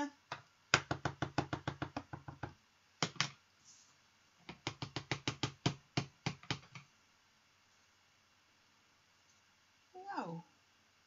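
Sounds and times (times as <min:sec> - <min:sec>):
stamp block tapping ink pad: 0:00.3 - 0:03.4, 0:04.5 - 0:06.9.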